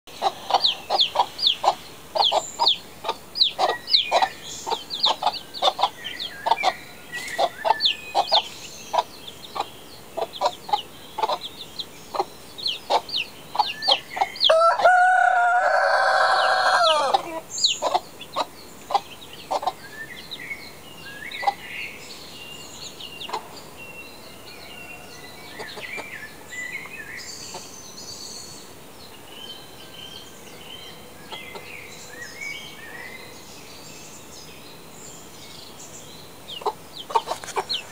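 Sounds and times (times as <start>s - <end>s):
chicks peeping: 0.1s - 27.9s, 30.5s - 33.4s, 36.4s - 37.9s
rooster crowing: 14.4s - 17.4s.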